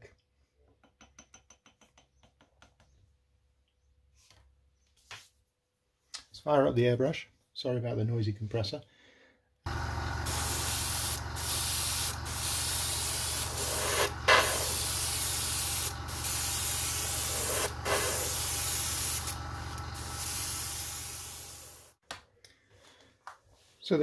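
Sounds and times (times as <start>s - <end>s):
air compressor humming: 9.7s - 22.0s
airbrush spraying hiss: 10.2s - 22.0s.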